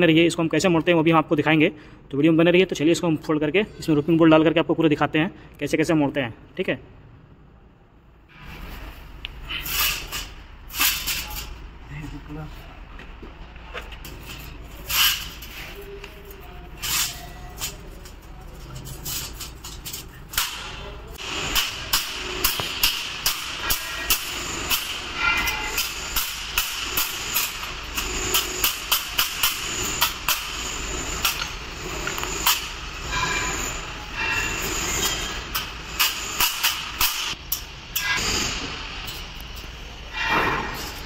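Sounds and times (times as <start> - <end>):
hammer striking metal: 20.3 - 38.8, 40.1 - 41.0.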